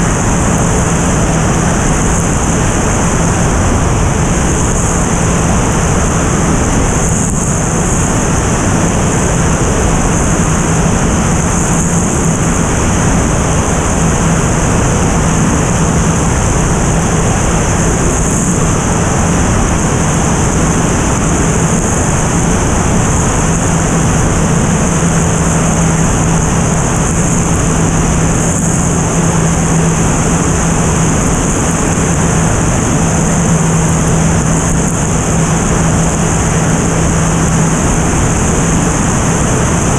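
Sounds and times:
propeller engine hum: 0.0 - 39.9
wind rush over microphone: 0.0 - 39.9.

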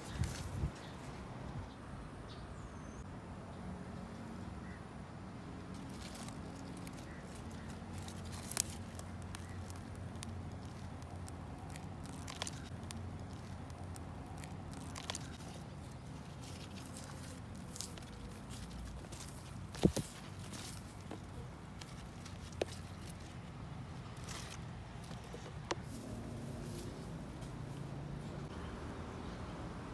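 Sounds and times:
fingers digging through soil: 5.7 - 27.8.

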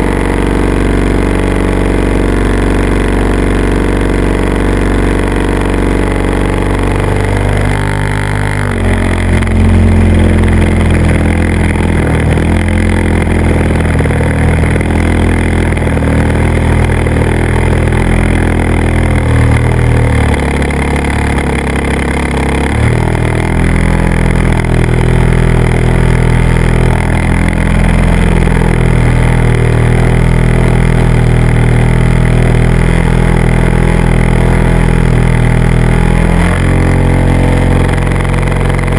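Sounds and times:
model aircraft motor and propeller: 0.0 - 38.9.

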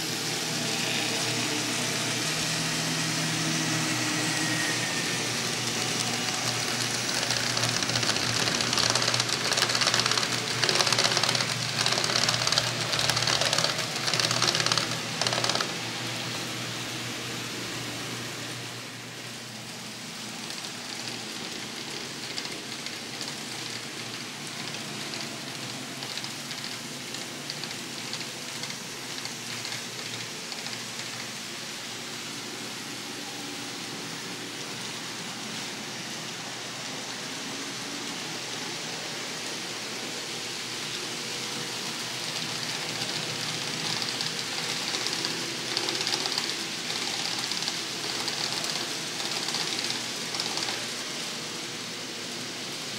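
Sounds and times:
faint motor hum: 0.0 - 52.9
model train wheels rattling on rail: 4.6 - 16.4, 20.2 - 31.4, 41.0 - 51.3.

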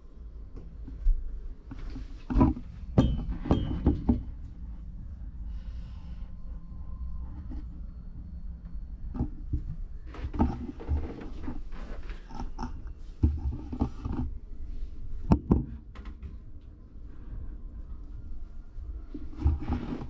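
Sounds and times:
knocks and thumps: 2.3 - 4.4.

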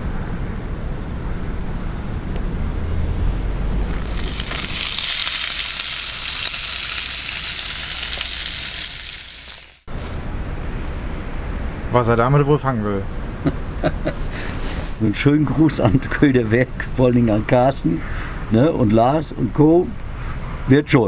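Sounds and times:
potatoes sizzling in a pan: 4.0 - 9.9.

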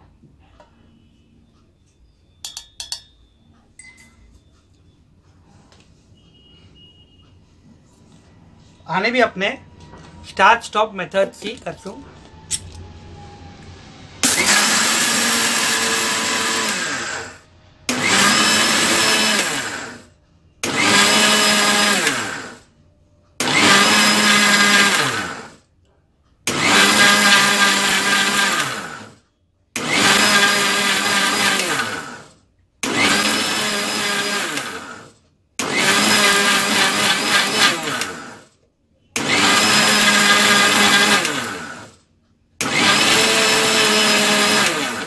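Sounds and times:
mixer grinder motor whining: 9.0 - 22.7, 23.4 - 25.6, 26.4 - 38.5, 39.2 - 42.0, 42.6 - 45.0.

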